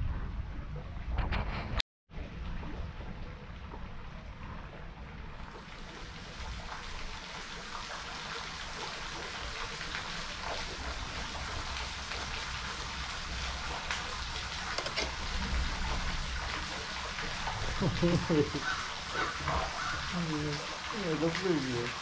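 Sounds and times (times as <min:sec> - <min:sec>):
water pattering and trickling: 0:02.2 - 0:22.0.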